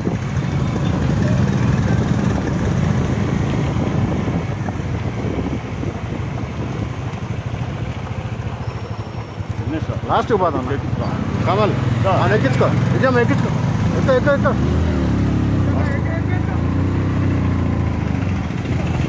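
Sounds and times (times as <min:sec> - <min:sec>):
wind rumbling on microphone: 0:00.0 - 0:07.4
motorcycle engines running: 0:00.0 - 0:19.0.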